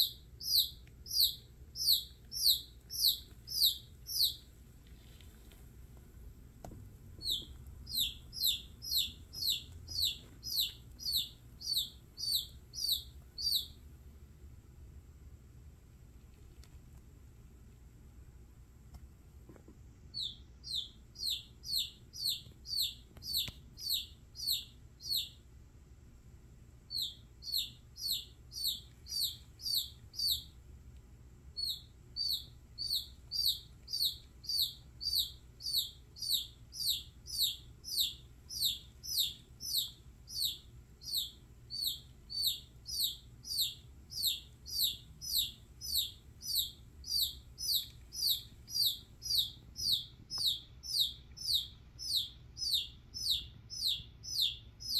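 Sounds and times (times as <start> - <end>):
chick peeping: 0.0 - 4.5, 7.2 - 13.8, 20.1 - 25.4, 26.9 - 30.6, 31.6 - 54.9.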